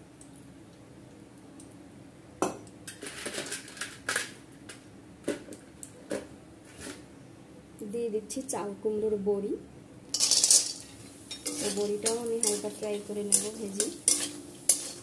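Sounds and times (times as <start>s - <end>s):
faint steady hum: 0.0s - 15.0s
steel utensils clinking on a pan: 10.2s - 15.0s.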